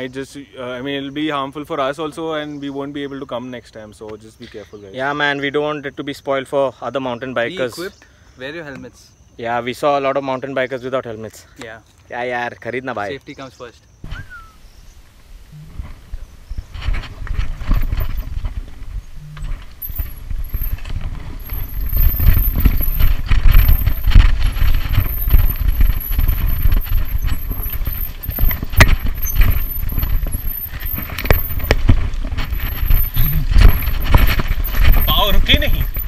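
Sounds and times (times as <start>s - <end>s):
wheels knocking on bumps: 14.0s - 36.0s
wind rumble on microphone: 14.0s - 36.0s
mountain bike clattering and rattling: 14.1s - 36.0s.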